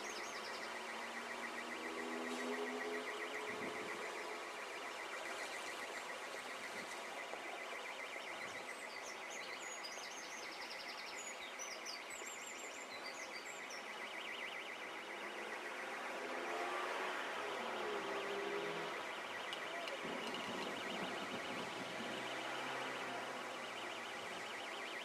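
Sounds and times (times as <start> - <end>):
songbird chirping and trilling: 0.0 - 25.0
flooded river rushing: 14.7 - 25.0.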